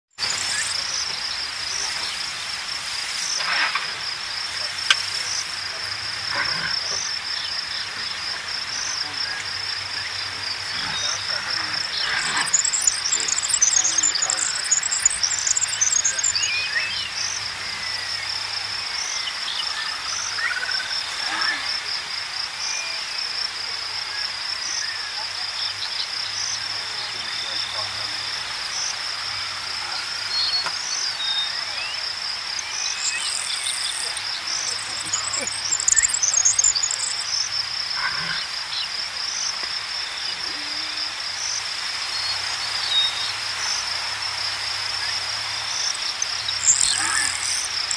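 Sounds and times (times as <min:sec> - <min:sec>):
insect chirring: 0:00.2 - 0:47.9
bird chirps: 0:08.7 - 0:21.5, 0:32.6 - 0:37.6, 0:45.7 - 0:47.9.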